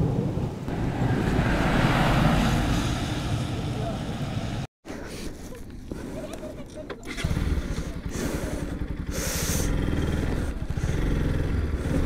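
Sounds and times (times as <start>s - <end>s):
motorcycle engine running: 7.0s - 12.0s.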